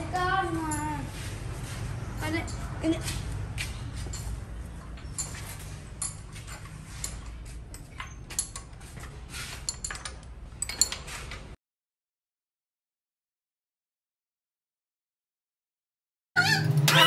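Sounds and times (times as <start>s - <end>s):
metal tools clinking: 4.0s - 11.5s.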